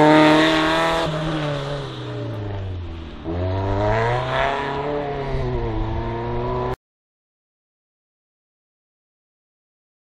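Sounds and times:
car engine revving hard: 0.0s - 6.8s.

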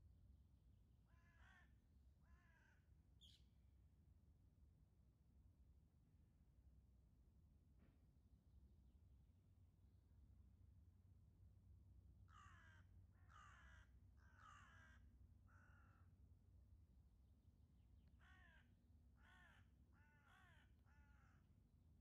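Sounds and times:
ravens cawing: 1.1s - 2.8s, 12.3s - 16.1s, 18.2s - 21.5s.

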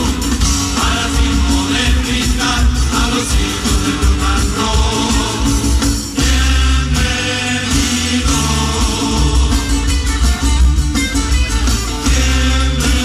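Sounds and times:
men singing together: 0.0s - 10.1s, 12.0s - 13.0s
plucked lutes and guitar: 5.1s - 13.0s.

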